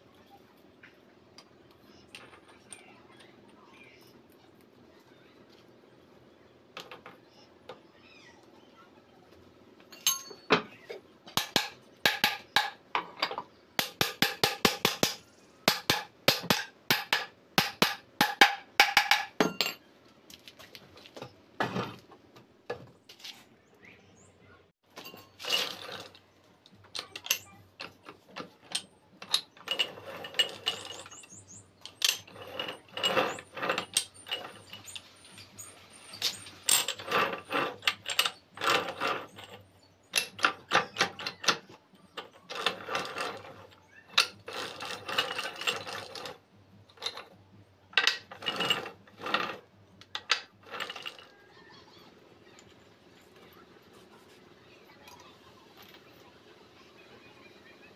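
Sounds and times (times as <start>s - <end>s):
gears clinking and rattling: 9.8s - 21.9s, 24.9s - 51.5s
ringing metal taps: 9.9s - 10.8s.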